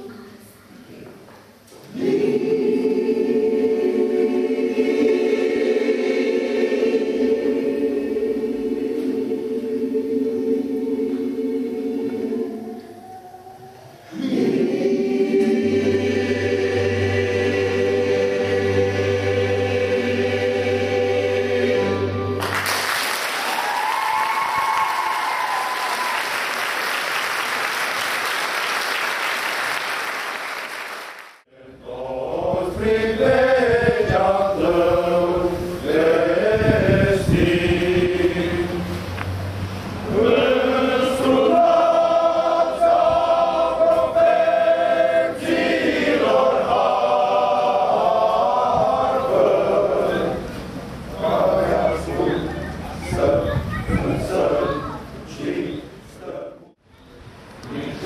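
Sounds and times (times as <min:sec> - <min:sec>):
mixed choir holding chord: 0:01.7 - 0:23.3, 0:31.4 - 0:56.9, 0:57.6 - 0:58.0
men's choir singing: 0:01.8 - 0:22.6, 0:31.5 - 0:56.8, 0:57.6 - 0:58.0
applause: 0:22.4 - 0:31.4.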